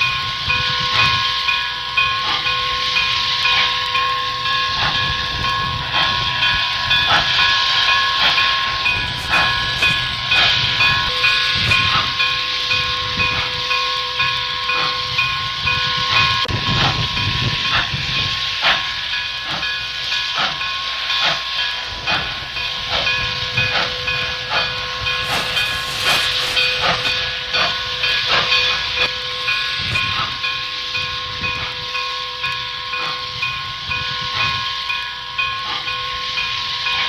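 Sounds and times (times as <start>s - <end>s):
regular locomotive beats: 0.0s - 37.0s
steady whistling tone: 0.0s - 37.0s
steam locomotive hissing: 0.0s - 37.0s.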